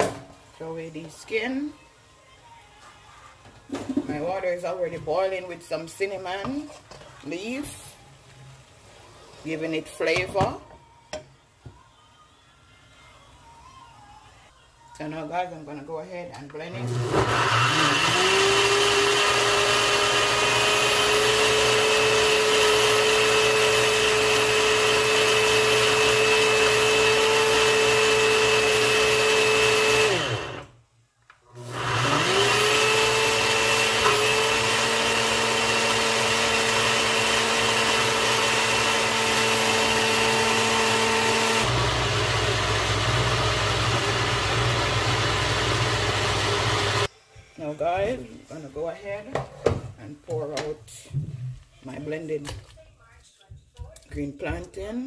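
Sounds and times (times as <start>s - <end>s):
blender motor whining: 16.8s - 30.7s, 31.5s - 47.1s.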